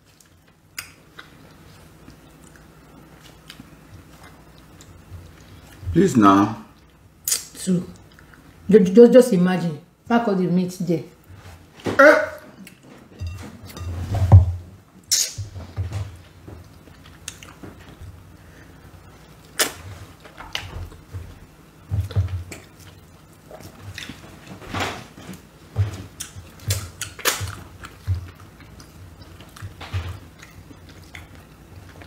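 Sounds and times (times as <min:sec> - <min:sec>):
chewing: 0:00.0 - 0:05.8, 0:06.7 - 0:08.5, 0:16.6 - 0:18.3, 0:21.9 - 0:24.6, 0:25.3 - 0:32.0.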